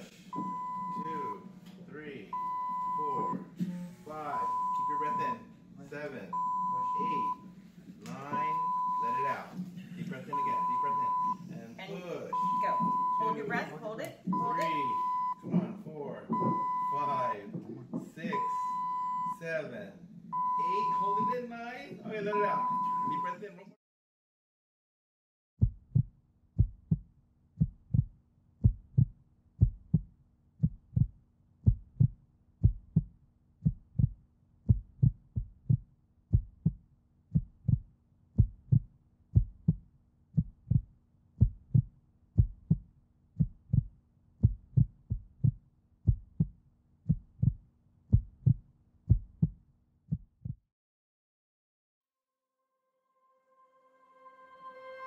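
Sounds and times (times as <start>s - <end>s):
heartbeat thumping: 0.3s - 1.4s, 2.3s - 3.8s, 12.3s - 19.3s, 20.3s - 21.4s, 25.6s - 50.6s.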